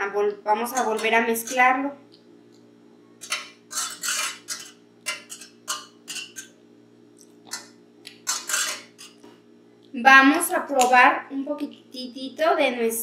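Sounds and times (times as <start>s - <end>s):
whisk beating in a pot: 3.2s - 6.5s.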